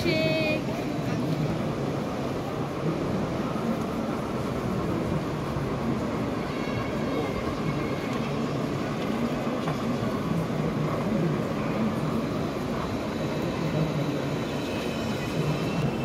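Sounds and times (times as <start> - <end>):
indistinct crowd voices: 0.0 - 16.0.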